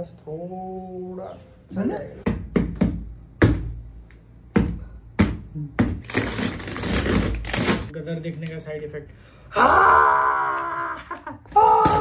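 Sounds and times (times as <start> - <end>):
cardboard tearing: 6.0 - 7.9.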